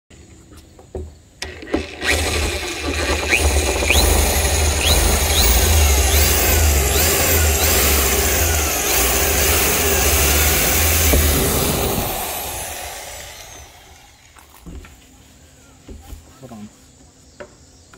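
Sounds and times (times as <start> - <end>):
electric drill cutting plastic: 1.4 - 14.5.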